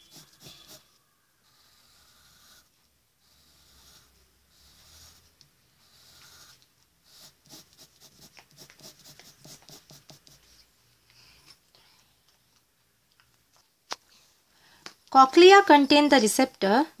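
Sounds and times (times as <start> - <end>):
pencil scratching on paper: 0.0 - 10.7.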